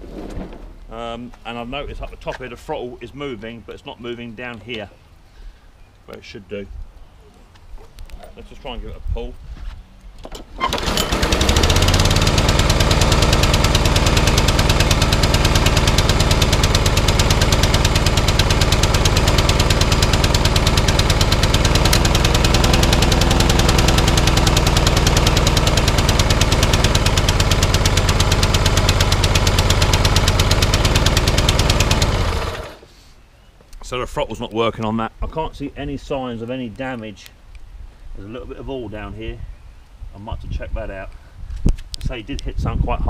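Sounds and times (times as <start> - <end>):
lawnmower engine running: 10.4 - 32.8.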